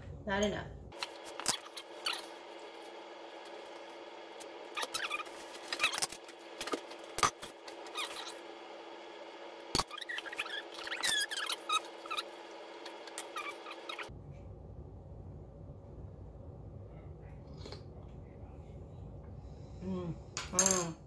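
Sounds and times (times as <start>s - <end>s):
steady low hum: 0.0s - 21.0s
wooden spoon squeaking on bowl: 1.2s - 2.4s, 4.7s - 6.2s, 7.8s - 8.4s, 9.8s - 14.1s.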